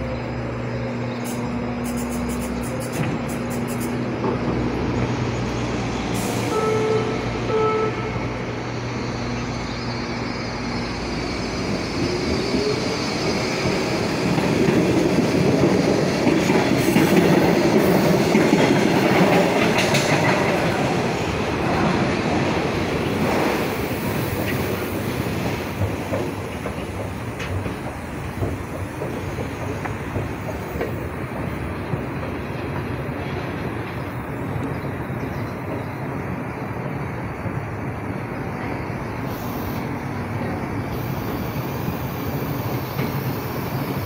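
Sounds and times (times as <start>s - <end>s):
train wheels rumbling on rails: 0.0s - 44.0s.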